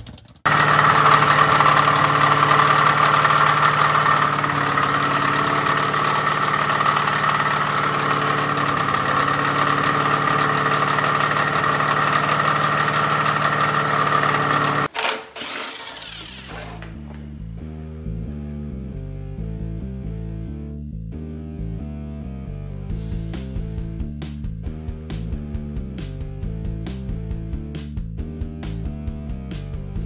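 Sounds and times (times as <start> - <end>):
engine running with rapid knocking: 0.1 - 14.9.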